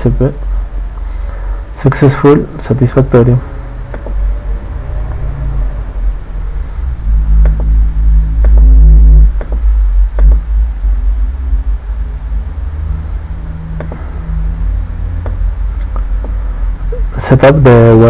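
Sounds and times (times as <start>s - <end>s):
steady low rumble: 0.0s - 18.0s
computer mouse clicks: 3.9s - 5.2s.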